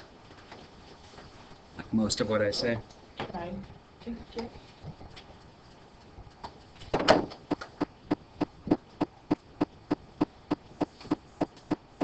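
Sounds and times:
steady tapping: 7.4s - 12.0s.

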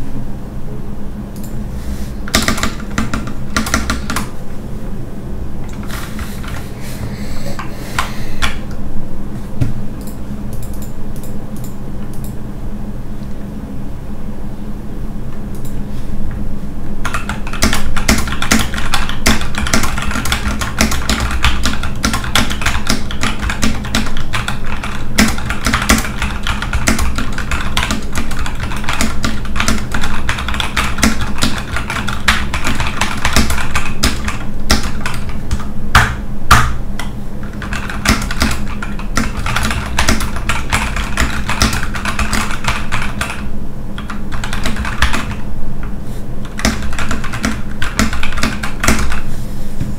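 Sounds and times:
mechanical keyboard typing: 2.3s - 4.3s, 17.0s - 36.7s, 37.4s - 45.4s, 46.4s - 49.2s.

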